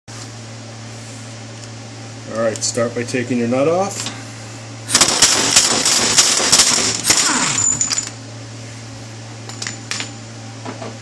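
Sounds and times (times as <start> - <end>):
air impact wrench hammering: 4.9 - 8.1.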